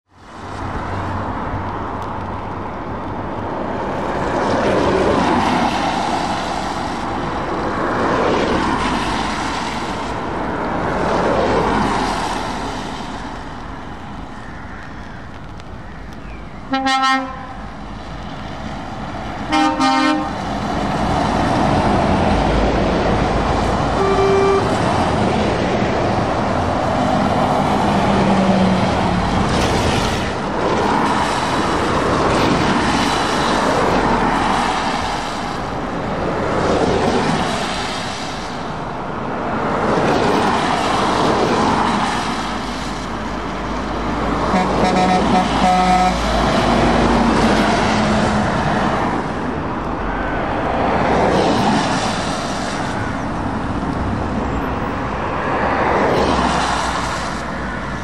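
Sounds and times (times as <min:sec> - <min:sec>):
vehicles passing on wet road: 0:00.1 - 0:58.0
higher horn toot: 0:16.7 - 0:17.6, 0:19.5 - 0:20.4, 0:23.9 - 0:25.0, 0:44.5 - 0:46.3
truck horn blasts: 0:16.7 - 0:17.6, 0:19.5 - 0:20.4, 0:23.9 - 0:24.9, 0:44.5 - 0:46.3.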